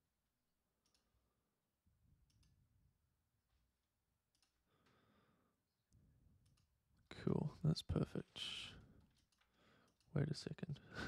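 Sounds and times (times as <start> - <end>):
faint computer mouse clicks: 0.8 - 1.1, 4.3 - 4.6.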